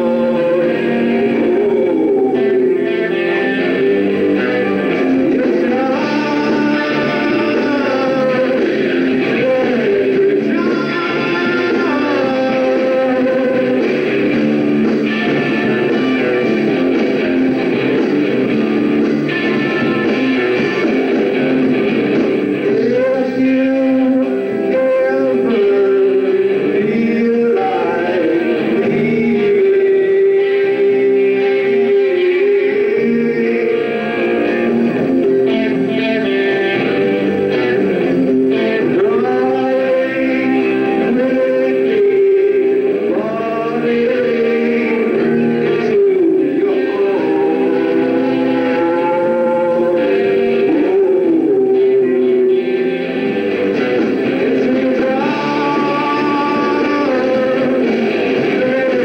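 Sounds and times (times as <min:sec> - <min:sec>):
electric guitars ringing: 0:00.0 - 0:59.0
live rock band playing: 0:00.0 - 0:59.0.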